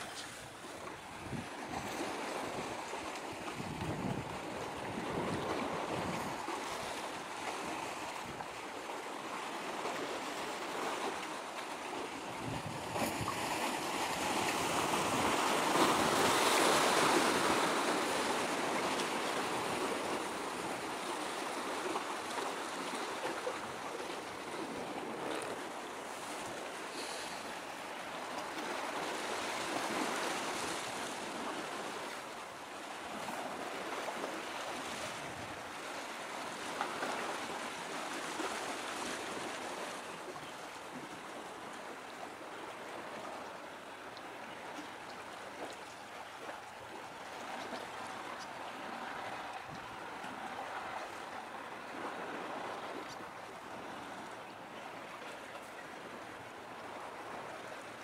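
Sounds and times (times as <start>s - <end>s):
small waves washing: 0.0s - 58.0s
wind: 0.0s - 58.0s.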